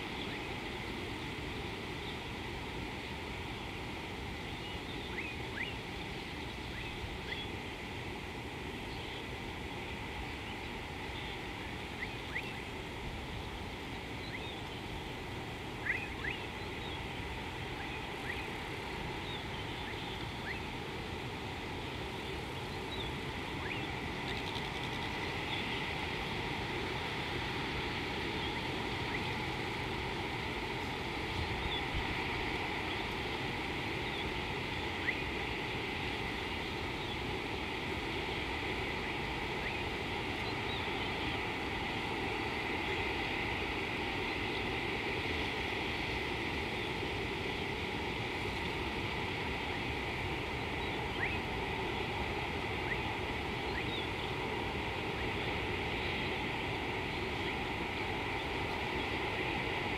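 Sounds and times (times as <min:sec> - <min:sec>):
river hiss: 0:00.0 - 0:59.9
faint bird chirps: 0:04.5 - 0:07.6, 0:12.0 - 0:12.6, 0:15.8 - 0:17.0, 0:19.2 - 0:20.7, 0:22.2 - 0:25.8.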